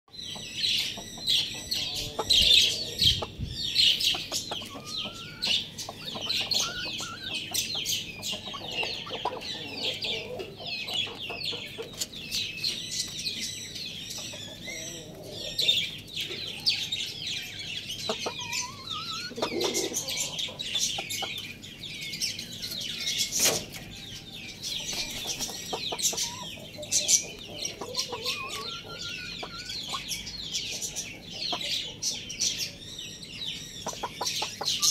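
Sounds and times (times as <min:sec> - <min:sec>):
chickens clucking: 0:00.1 - 0:34.9
high-pitched chick chirps: 0:00.1 - 0:34.9.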